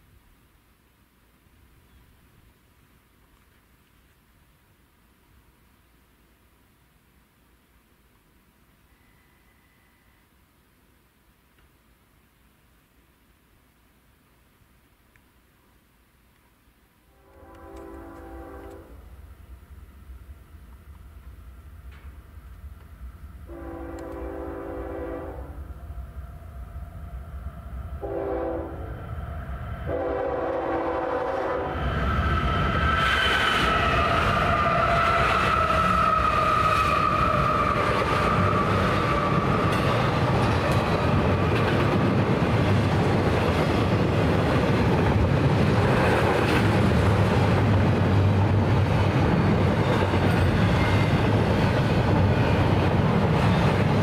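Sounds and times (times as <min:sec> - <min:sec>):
locomotive air horn blowing: 0:17.1 - 0:19.0, 0:23.5 - 0:25.6, 0:28.0 - 0:29.0, 0:29.9 - 0:31.8
locomotive engine passing: 0:17.6 - 0:54.0
train wheels clattering: 0:33.2 - 0:54.0.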